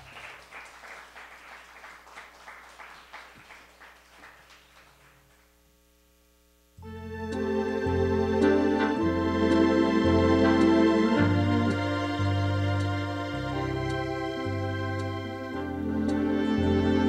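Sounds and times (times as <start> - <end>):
hands clapping: 0.0 - 5.6
electronic organ chord: 6.8 - 17.0.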